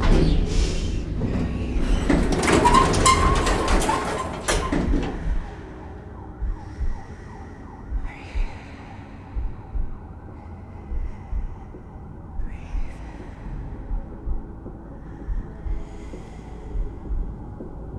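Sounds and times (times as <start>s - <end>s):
elevator mechanical rumble and clatter: 0.0s - 6.6s
low hum: 0.0s - 17.9s.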